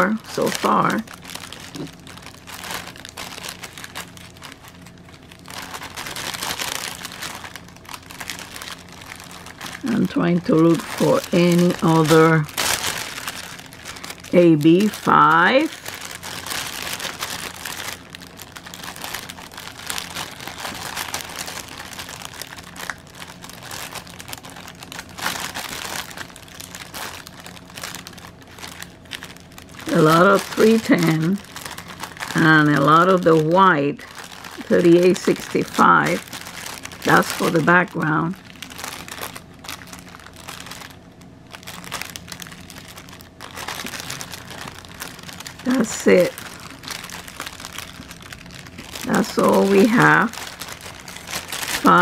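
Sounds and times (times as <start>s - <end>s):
plastic bags crinkling: 0.0s - 52.0s.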